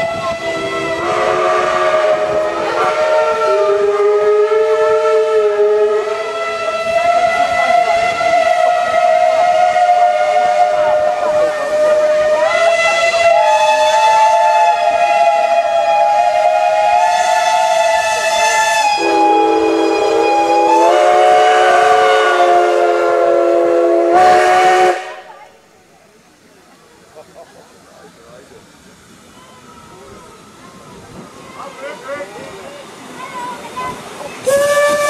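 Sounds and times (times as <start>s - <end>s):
steam locomotive whistles blowing: 0.0s - 25.3s, 33.9s - 35.0s.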